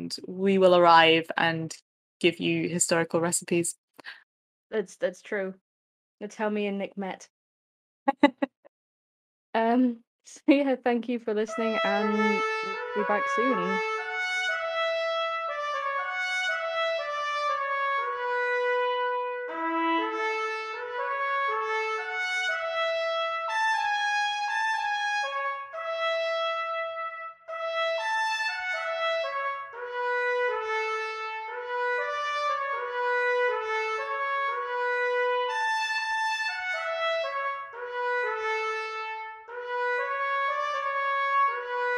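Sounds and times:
instrumental music with held notes: 11.5s - 41.9s.

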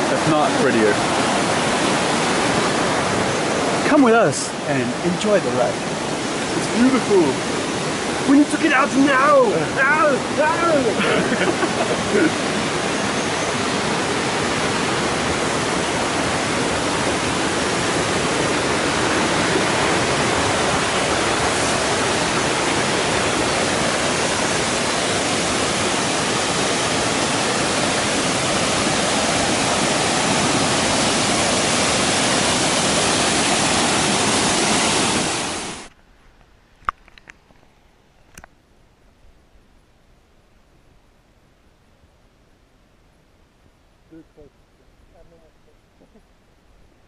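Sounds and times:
waterfall rushing: 0.0s - 35.9s.

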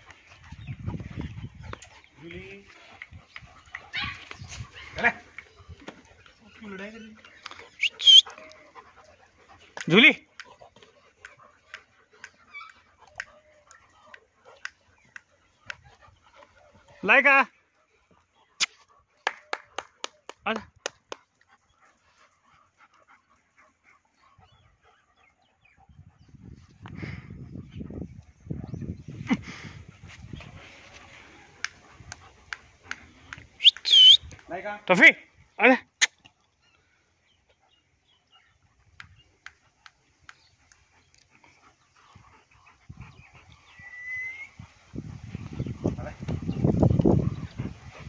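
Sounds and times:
puppies whining and yipping: 6.4s - 8.9s, 12.2s - 15.0s, 33.6s - 34.2s, 42.0s - 45.8s
dog whining: 7.8s - 8.4s, 33.6s - 34.2s.

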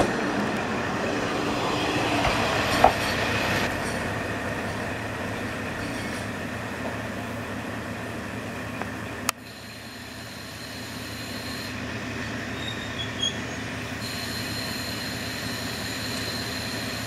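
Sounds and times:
diesel railcar engine running: 0.0s - 17.0s
high brake squeaks: 12.5s - 17.0s.

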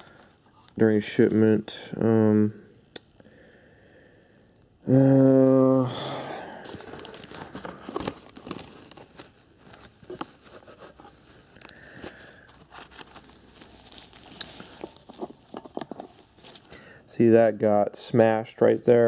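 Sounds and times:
paper crinkling and rustling: 6.5s - 16.7s.

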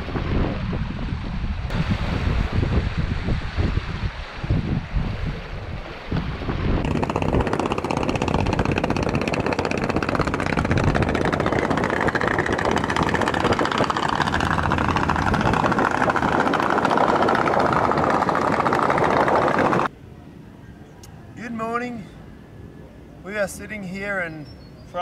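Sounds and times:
ferry engine running: 6.8s - 19.9s.

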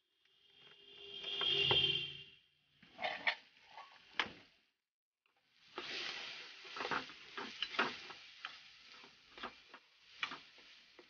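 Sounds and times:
pasta sizzling in a pan: 5.4s - 11.0s.

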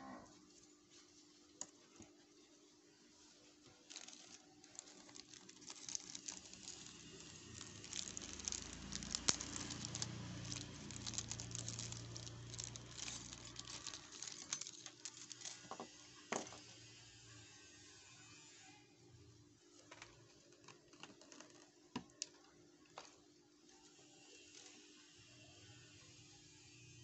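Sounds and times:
plastic bag crinkling: 3.4s - 16.6s, 19.8s - 24.9s.

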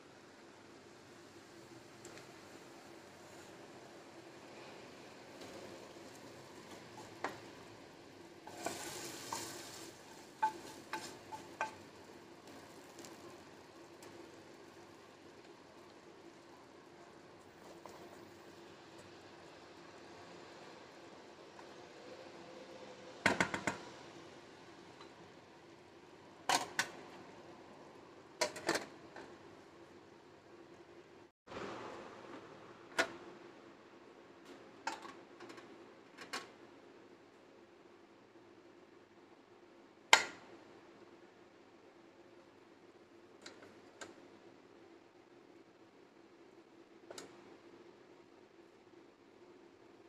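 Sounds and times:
faint steady hiss: 0.0s - 50.0s
spatula scraping frying pan: 8.4s - 12.0s.

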